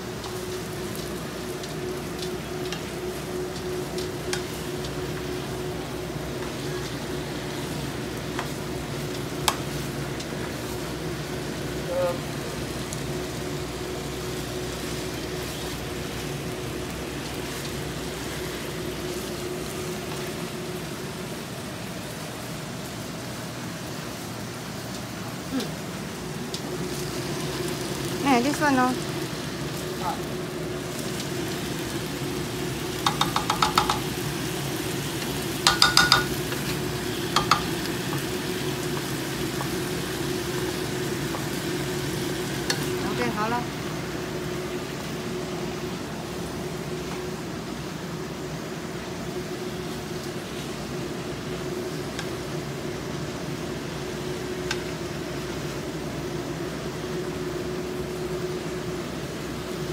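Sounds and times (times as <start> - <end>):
meat sizzling in a frying pan: 0.0 - 59.9
steady hum: 0.0 - 59.9
spatula tapping metal pan: 33.0 - 34.1, 35.6 - 36.6, 37.3 - 37.8.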